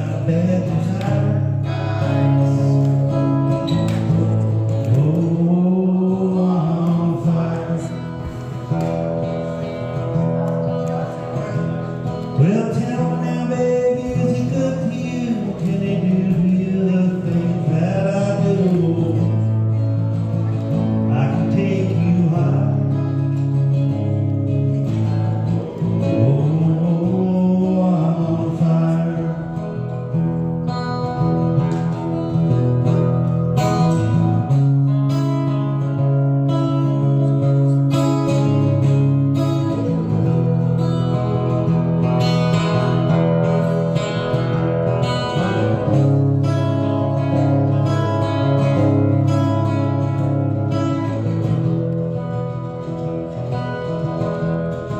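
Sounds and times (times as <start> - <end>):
man singing: 0.0 - 8.8, 10.0 - 23.9, 25.4 - 30.9
acoustic guitar strumming: 0.0 - 54.9.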